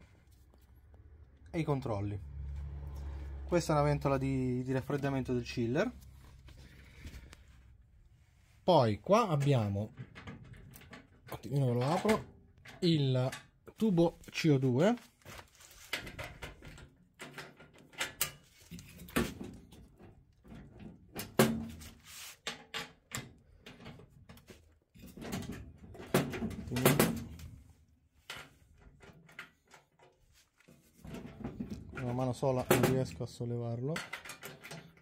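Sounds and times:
metallic clicks and rattles: 0:09.4 - 0:13.8, 0:33.9 - 0:35.0.

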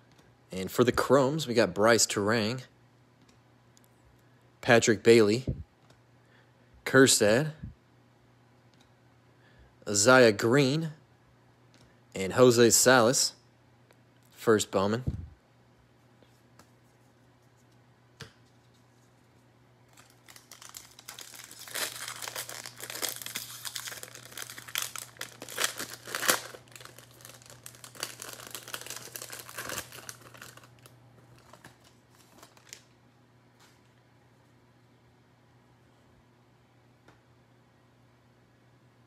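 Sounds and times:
faint steady hum: 0:00.0 - 0:39.0
foil wrapper tearing and crinkling: 0:19.9 - 0:32.9.

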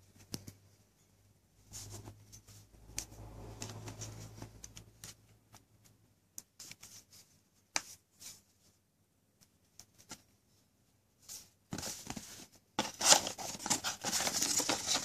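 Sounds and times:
handling rustle: 0:11.2 - 0:15.0.

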